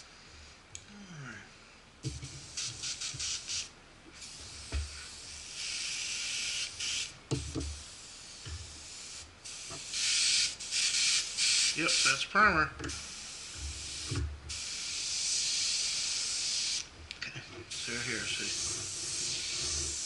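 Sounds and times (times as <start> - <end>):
airbrush spraying hiss: 2.1 - 12.3, 12.9 - 16.9, 17.7 - 20.0.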